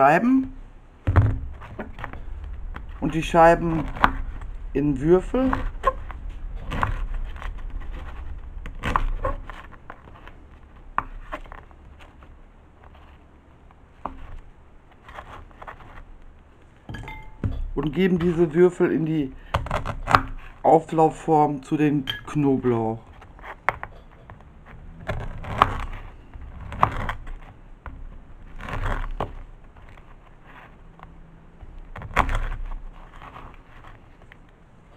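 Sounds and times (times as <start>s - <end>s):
crusty bread crackling under knife: 1.4s - 16.4s, 22.5s - 34.5s.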